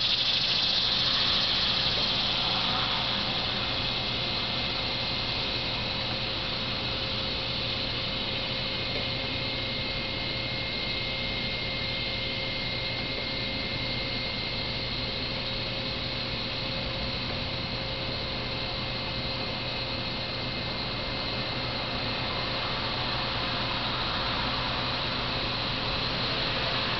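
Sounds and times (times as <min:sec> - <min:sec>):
even hiss: 0:00.0 - 0:08.6, 0:21.6 - 0:26.9
faint high-pitched whine: 0:00.0 - 0:26.9
steady hum: 0:00.0 - 0:26.9.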